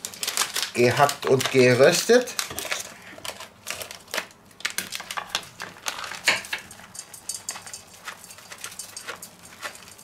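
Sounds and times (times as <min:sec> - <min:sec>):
plastic bag crinkling: 0:00.0 - 0:07.0.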